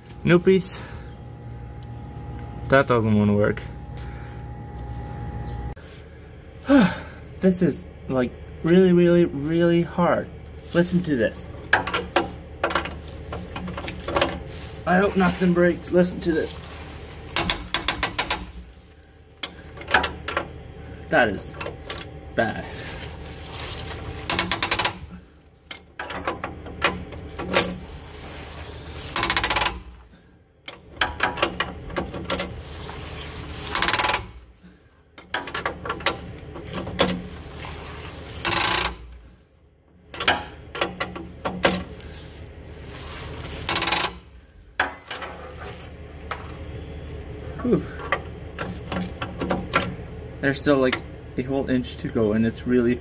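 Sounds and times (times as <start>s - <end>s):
seized nut grating: 27.4s - 30.0s, 32.4s - 34.5s, 37.2s - 39.2s, 41.8s - 44.3s.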